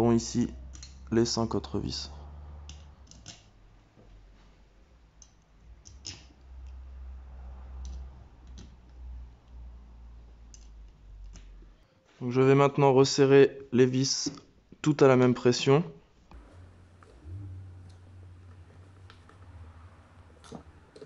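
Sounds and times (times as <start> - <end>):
light metal clicks: 0.6 - 1.1, 2.6 - 3.5
steady low hum: 16.1 - 21.0.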